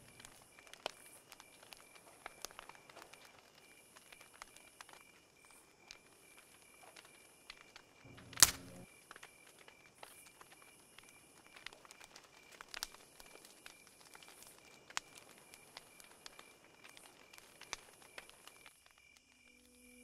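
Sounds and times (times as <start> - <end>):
soft clicks and ticks: 5.8 - 19.2.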